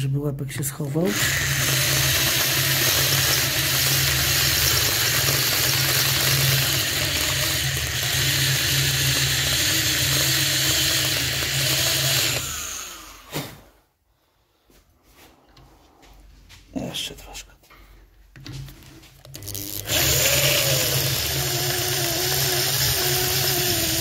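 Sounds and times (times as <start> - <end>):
electric drill running: 1.0 - 13.3, 19.2 - 24.0.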